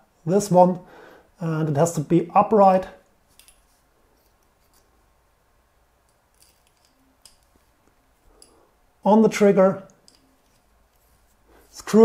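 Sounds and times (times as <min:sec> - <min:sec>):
small metal parts clicking: 0:06.0 - 0:08.6, 0:10.0 - 0:10.6.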